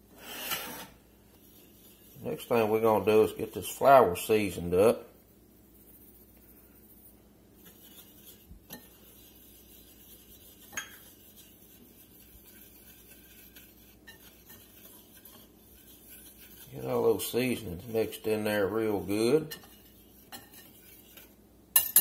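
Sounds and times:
whisk rustling in flour: 0:01.2 - 0:21.6
whisk clinking against dish: 0:07.6 - 0:22.0.

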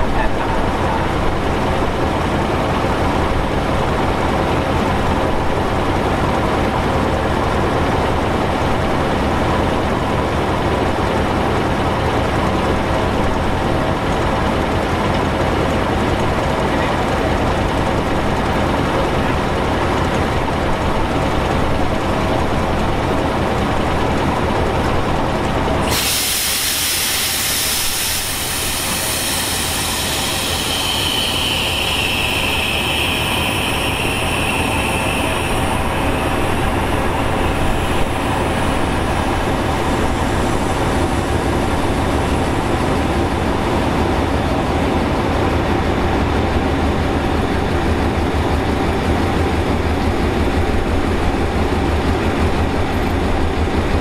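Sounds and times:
diesel train idling rumble: 0:00.0 - 0:54.0
air brakes hissing: 0:25.8 - 0:43.6.

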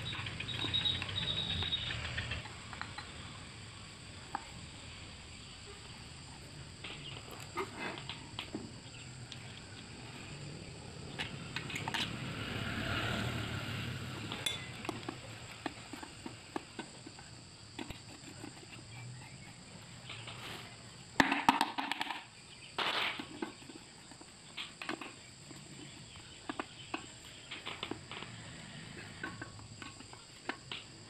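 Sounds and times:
metal tools clinking on engine: 0:14.2 - 0:16.0.

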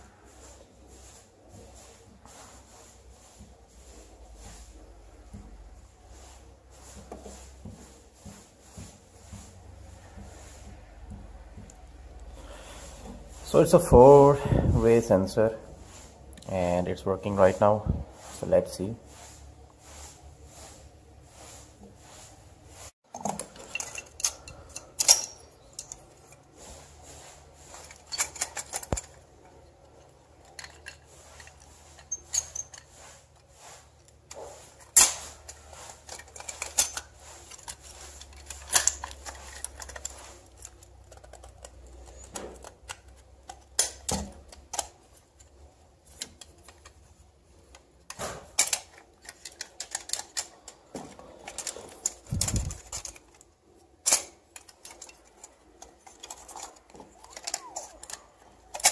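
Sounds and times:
metal clicks and clatters: 0:23.1 - 0:26.5, 0:27.8 - 0:32.9, 0:34.8 - 0:47.0, 0:47.7 - 0:58.9.

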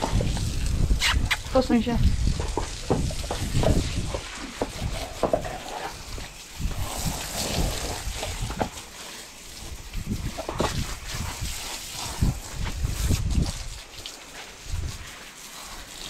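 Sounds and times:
hose nozzle spraying water: 0:00.0 - 0:16.0
water splashing on brick paving: 0:00.0 - 0:16.0
low thumps and knocks: 0:02.0 - 0:05.6.

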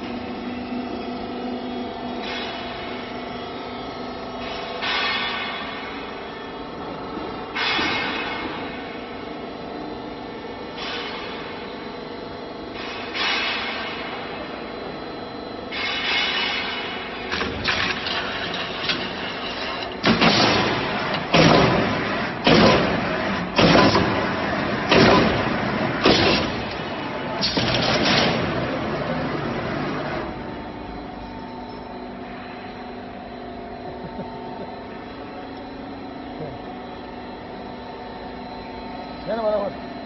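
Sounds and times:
roll-forming machine running: 0:17.2 - 0:31.0.

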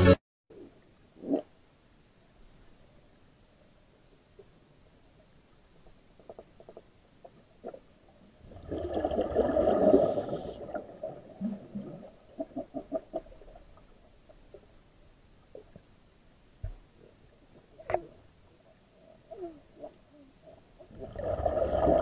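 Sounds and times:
diver exhaling bubbles underwater: 0:08.4 - 0:13.3, 0:20.9 - 0:22.0.

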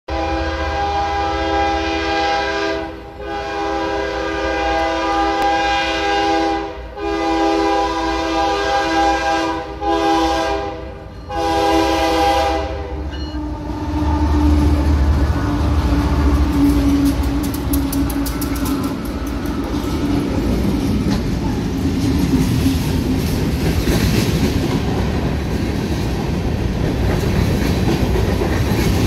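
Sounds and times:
locomotive air horn blasts: 0:00.1 - 0:17.4
locomotive rumbling past: 0:00.1 - 0:29.0.

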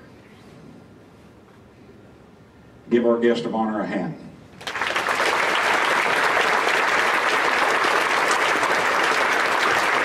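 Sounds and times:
audience applause: 0:04.6 - 0:10.0.

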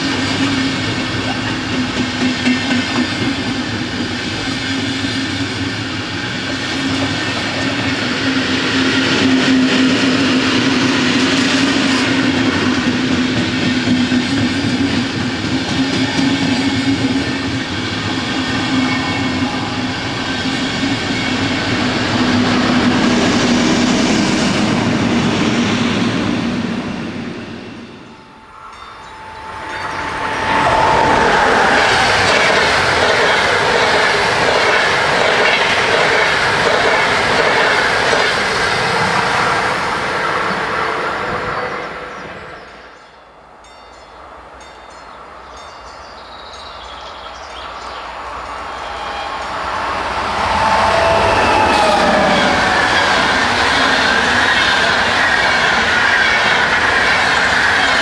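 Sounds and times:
train wheels clattering over rails: 0:00.0 - 0:28.1, 0:29.9 - 0:40.4
steady high tone: 0:18.2 - 0:33.6, 0:48.4 - 0:55.5.

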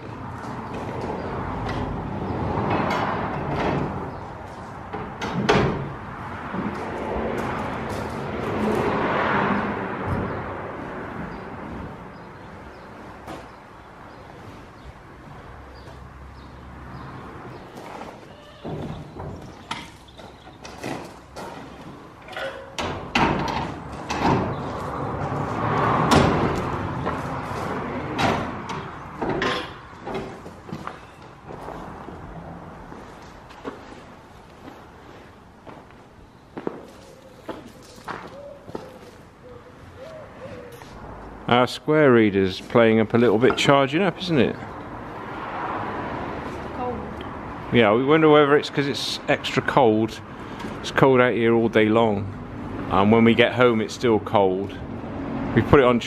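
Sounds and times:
metal frames knocking and clattering: 0:02.6 - 0:04.2, 0:04.9 - 0:08.1, 0:18.6 - 0:24.7, 0:28.0 - 0:30.9
metal hatch knocking and clattering: 0:22.3 - 0:24.6.

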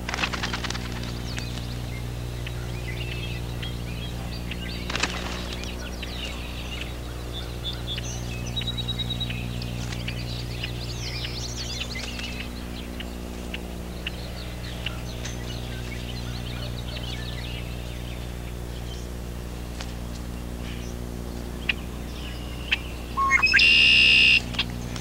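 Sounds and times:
blackbirds chirping: 0:00.0 - 0:25.0
steady low hum: 0:00.0 - 0:25.0.

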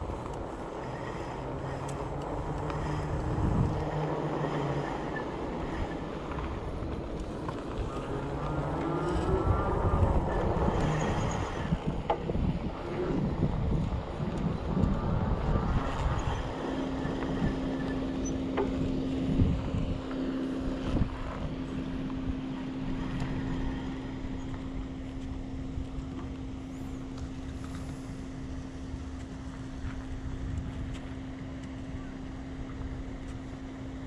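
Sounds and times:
wind buffeting microphone: 0:00.0 - 0:26.6
steady low hum: 0:00.0 - 0:34.0.

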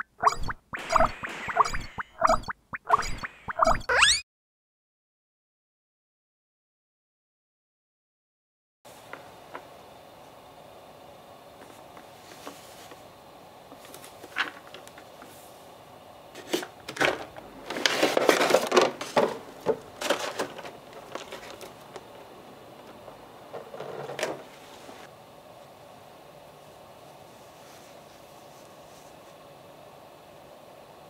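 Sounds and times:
plastic tray crackling: 0:17.0 - 0:22.1.

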